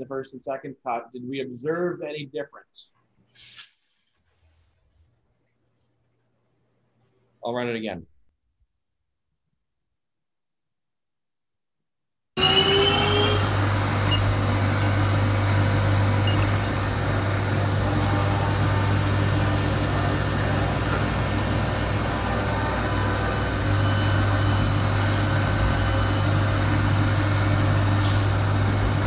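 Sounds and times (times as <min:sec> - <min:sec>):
high whine: 0:12.4 - 0:29.0
milling machine humming: 0:12.4 - 0:29.0.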